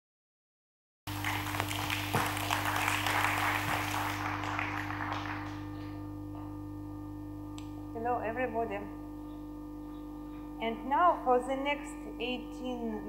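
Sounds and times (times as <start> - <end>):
audience applauding: 1.1 - 6.0
low hum: 1.1 - 13.0.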